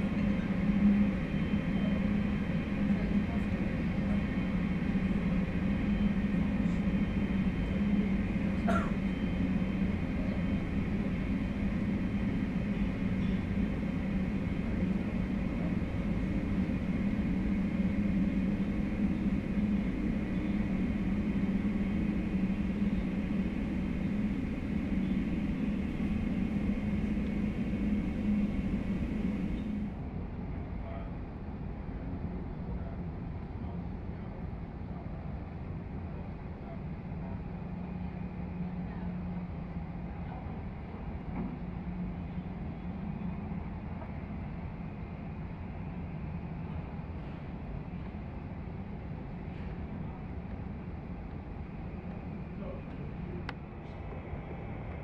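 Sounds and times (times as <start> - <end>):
duller jet hum: 0.0 - 30.1
jet engines humming: 0.0 - 30.2, 36.9 - 55.0.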